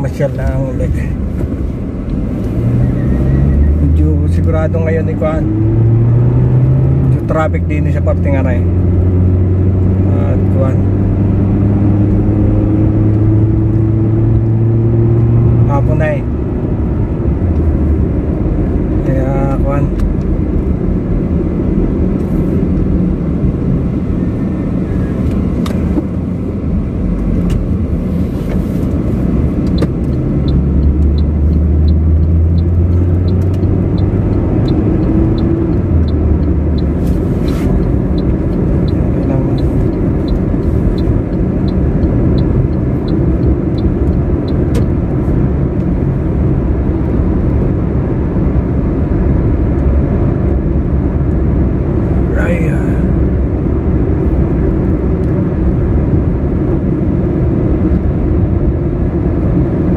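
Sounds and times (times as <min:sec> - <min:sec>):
car engine and road rumble: 0:00.0 - 0:59.9
faint regular ticking: 0:29.6 - 0:45.0.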